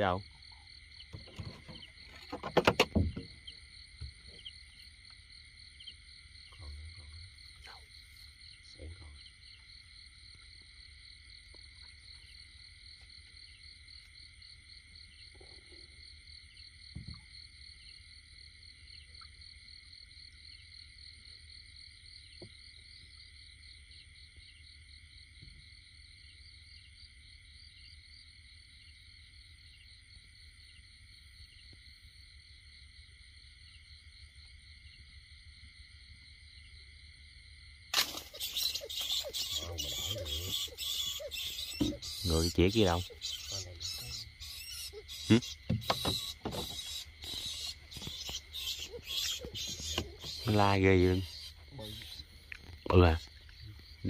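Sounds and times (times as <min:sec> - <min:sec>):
night insects trilling: 0:00.0 - 0:54.0
soft thump: 0:41.8 - 0:42.0.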